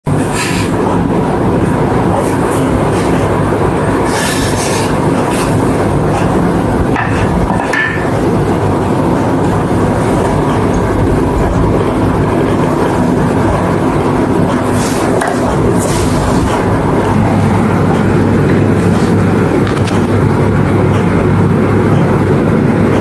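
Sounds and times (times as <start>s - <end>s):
low hum: 4.9s - 23.0s.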